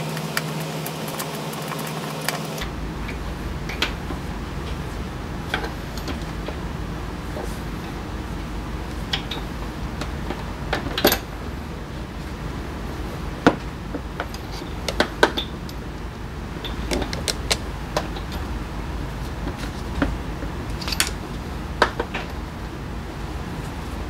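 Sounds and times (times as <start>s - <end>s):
steady low hum: 0.0s - 24.0s
small metal parts clinking: 10.8s - 11.3s, 20.7s - 21.2s.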